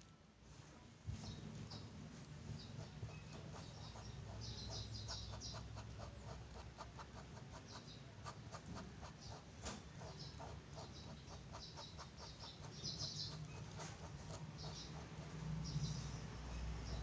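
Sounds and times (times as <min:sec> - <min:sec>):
pen scratching on paper: 0:02.5 - 0:16.0.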